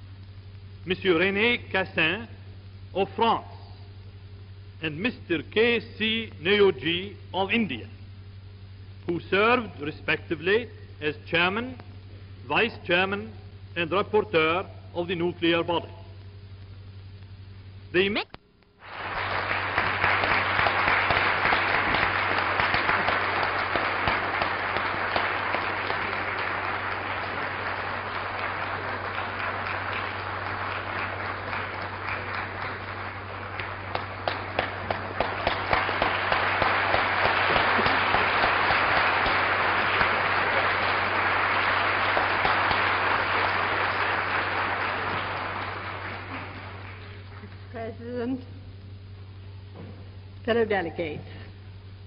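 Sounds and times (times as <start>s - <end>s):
steady low hum: 0.0s - 52.0s
crowd applauding: 18.8s - 47.8s.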